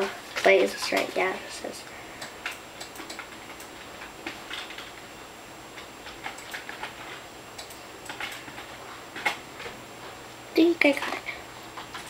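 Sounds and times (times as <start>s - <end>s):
computer keyboard keys tapped: 2.2s - 4.9s, 5.8s - 9.4s.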